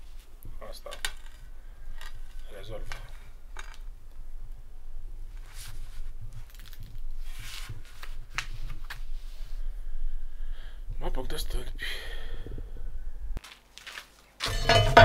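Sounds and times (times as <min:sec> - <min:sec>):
steady low hum: 0:00.0 - 0:13.4, 0:14.5 - 0:15.0.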